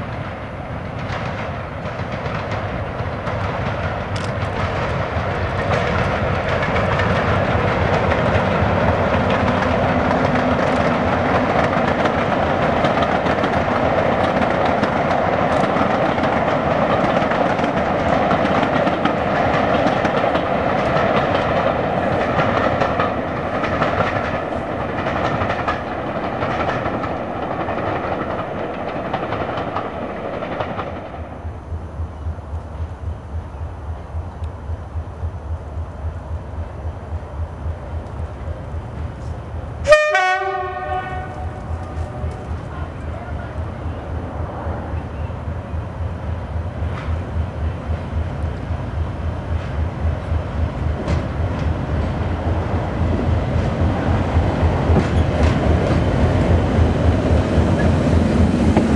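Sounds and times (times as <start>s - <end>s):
wheels on rails: 0.0s - 46.0s
diesel locomotive engine roar: 0.0s - 58.9s.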